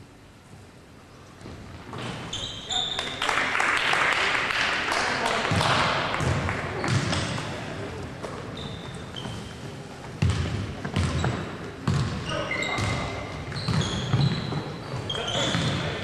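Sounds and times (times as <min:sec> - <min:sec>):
shoes squeaking on floor: 0:01.9 - 0:03.2, 0:08.2 - 0:16.0
basketball bouncing on wooden floor: 0:05.5 - 0:07.3, 0:10.2 - 0:12.2.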